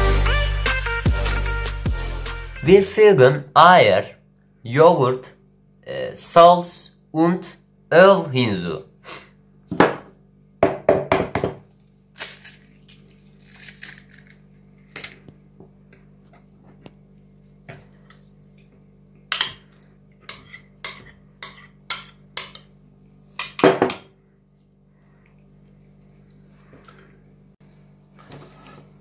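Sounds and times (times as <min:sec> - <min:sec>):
faint steady hum: 0:11.6 - 0:29.0.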